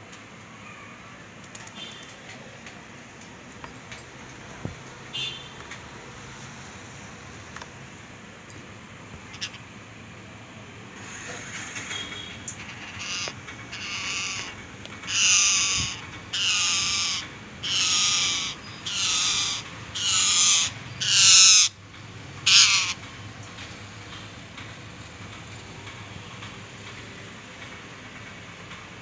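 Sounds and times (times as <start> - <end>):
parakeet screeching: 9.3 - 9.6, 11.0 - 21.8, 22.4 - 23.0.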